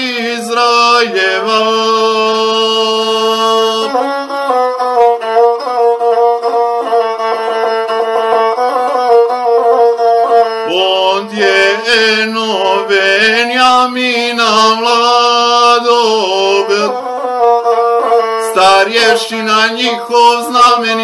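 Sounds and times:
person singing a chant: 0.0s - 4.2s, 9.0s - 21.0s
bowed single-string fiddle: 0.0s - 21.0s.

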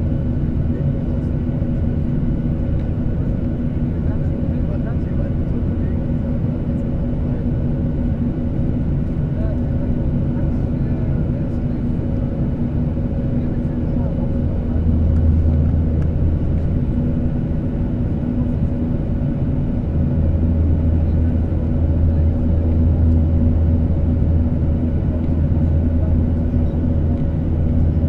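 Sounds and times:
jet engine drone: 0.0s - 28.0s
deep hum: 13.3s - 28.0s.

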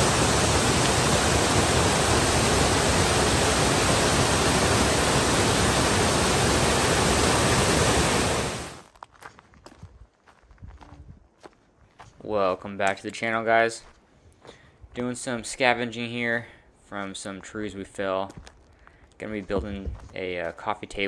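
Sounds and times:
small waterfall rushing: 0.0s - 8.8s.

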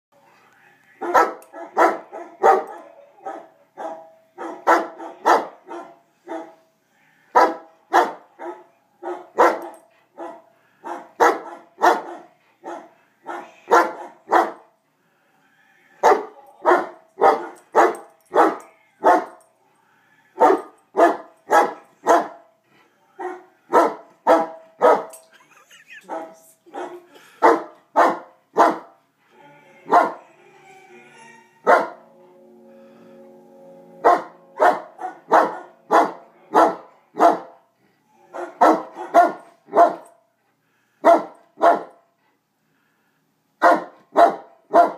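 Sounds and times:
dog barking: 1.0s - 6.6s, 7.3s - 14.7s, 16.0s - 19.4s, 20.4s - 22.4s, 23.2s - 25.2s, 26.0s - 29.0s, 29.9s - 30.2s, 31.6s - 32.0s, 34.0s - 37.6s, 38.3s - 40.2s, 41.0s - 42.0s, 43.6s - 44.9s.

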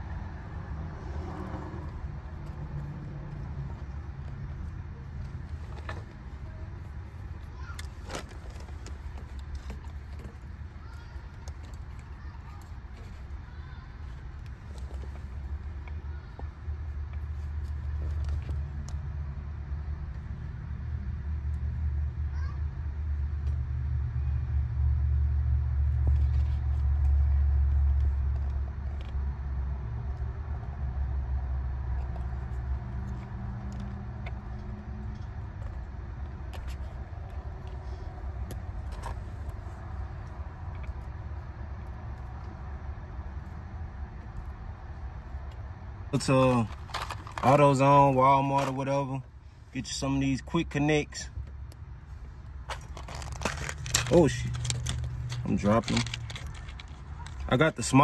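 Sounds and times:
low vehicle rumble: 0.0s - 58.0s
clicks and rattles of parts: 46.2s - 47.8s, 52.5s - 57.7s.

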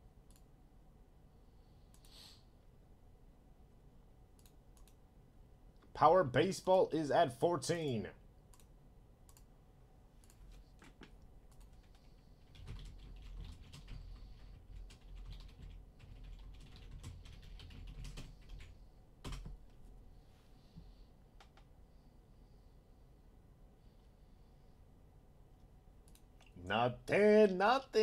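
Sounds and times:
faint keyboard typing: 0.2s - 0.5s, 1.9s - 2.2s, 4.3s - 5.0s, 7.9s - 9.5s, 10.2s - 19.9s, 20.8s - 21.8s, 25.6s - 26.6s.

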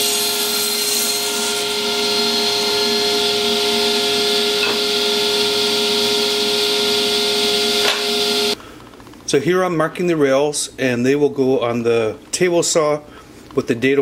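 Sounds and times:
power tool motor humming: 0.0s - 8.6s.

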